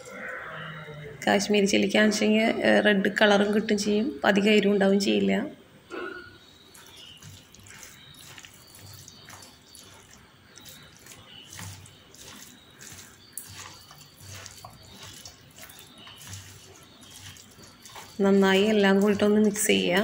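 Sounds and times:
hand squishing chicken in marinade: 0:06.7 - 0:20.0.

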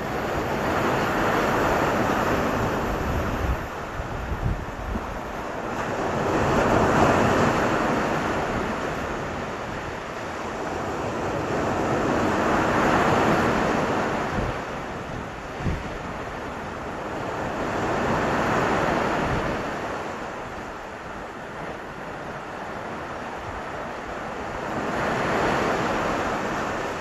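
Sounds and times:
sea waves washing up a beach: 0:00.0 - 0:27.0.

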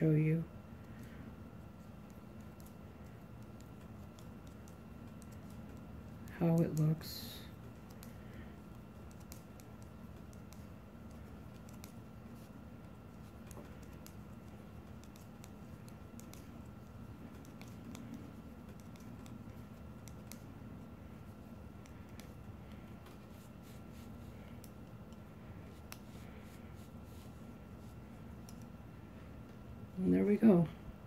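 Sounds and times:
low steady hum: 0:00.0 - 0:31.0
knitting needles clicking: 0:02.0 - 0:12.0, 0:13.2 - 0:20.5.

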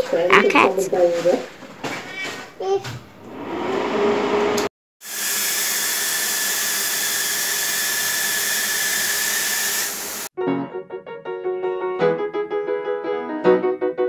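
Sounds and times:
paint spray gun hissing: 0:05.0 - 0:10.3.

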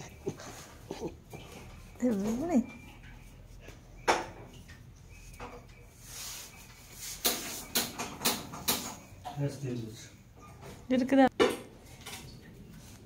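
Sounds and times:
sharp clicks and knocks: 0:07.2 - 0:09.1.

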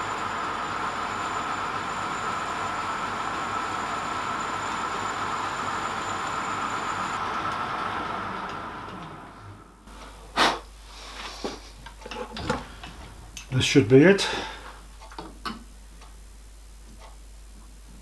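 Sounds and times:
metal lathe whining: 0:00.0 - 0:09.6.

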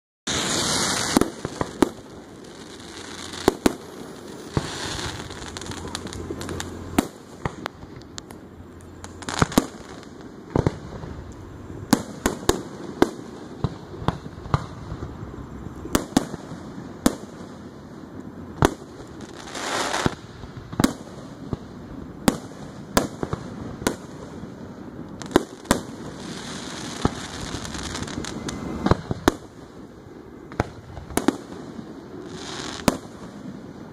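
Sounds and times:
fireworks bursting with bangs: 0:00.3 - 0:33.9
fireworks hiss and crackle: 0:00.3 - 0:33.9.

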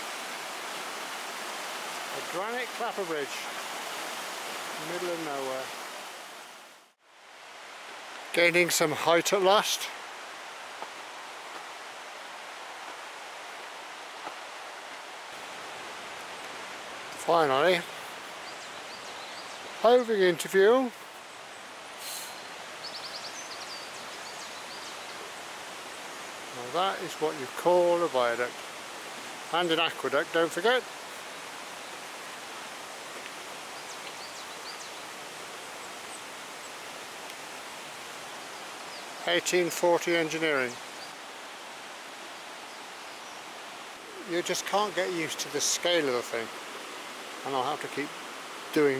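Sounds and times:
outdoor background hiss: 0:00.0 - 0:48.9
faint bird chirps: 0:21.2 - 0:25.4, 0:33.7 - 0:35.2.

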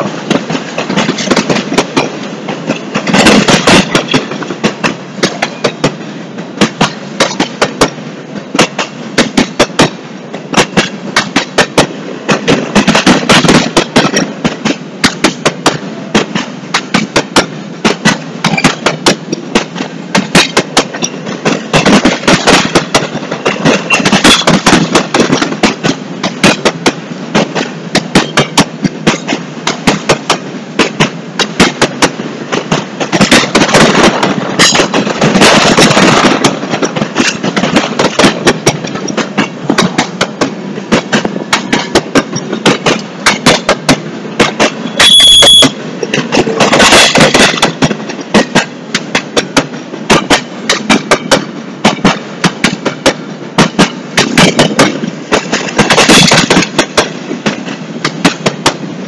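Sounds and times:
freight train rumble: 0:00.0 - 0:59.0
train wheels clacking over rails: 0:00.0 - 0:59.0.

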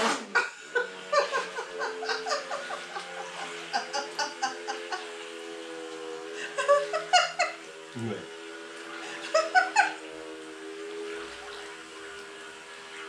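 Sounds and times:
rc boat motors whining: 0:00.0 - 0:13.0
people laughing and giggling: 0:00.4 - 0:05.2, 0:06.4 - 0:07.6.

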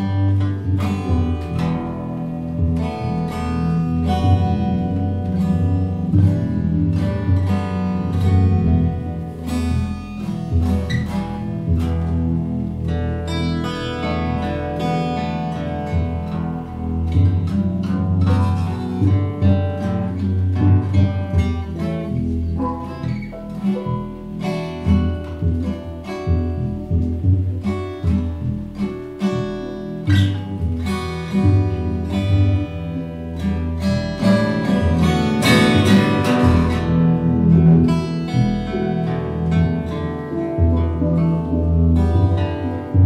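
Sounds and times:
low bass line: 0:00.0 - 0:43.0
plucked guitar notes: 0:00.0 - 0:43.0.

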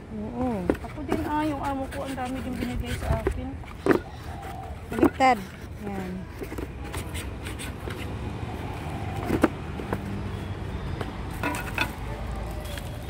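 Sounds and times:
road traffic: 0:00.0 - 0:13.0
cardboard packaging being handled: 0:11.3 - 0:13.0.

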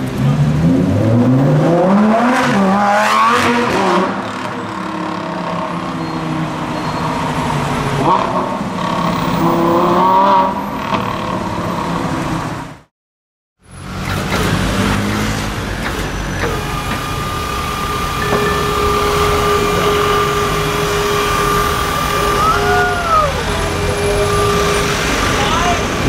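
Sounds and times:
car engine revving: 0:00.0 - 0:06.6, 0:13.8 - 0:26.0
street traffic: 0:00.0 - 0:12.9, 0:13.6 - 0:26.0
truck idling: 0:15.7 - 0:26.0
high mechanical whine: 0:16.0 - 0:25.6.

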